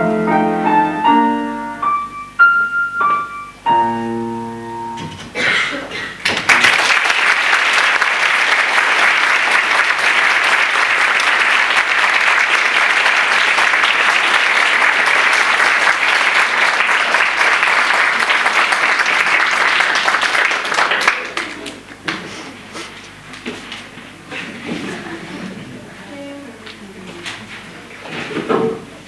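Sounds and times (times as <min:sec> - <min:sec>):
audience applauding: 0:06.2 - 0:22.2.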